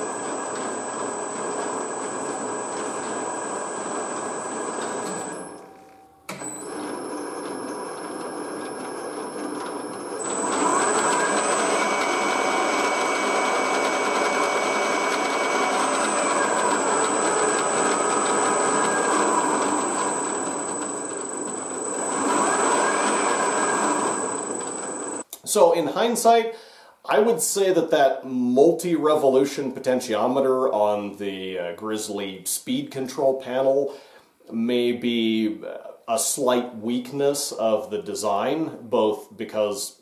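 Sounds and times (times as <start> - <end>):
milling machine motor humming: 0.0 - 5.7, 6.3 - 25.2.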